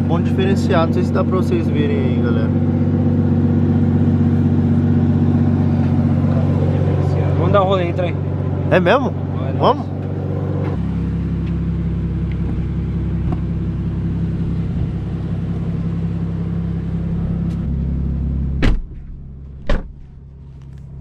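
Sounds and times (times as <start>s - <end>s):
car engine idling: 0.0s - 21.0s
car door shutting: 12.2s - 13.6s, 18.5s - 20.2s.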